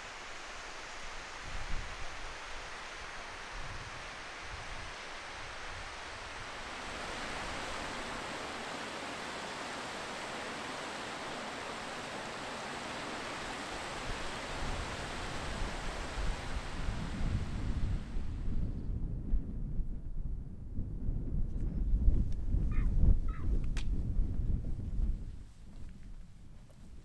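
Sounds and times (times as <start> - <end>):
stream rushing over rocks: 0.0 - 18.2
wind buffeting microphone: 3.4 - 27.0.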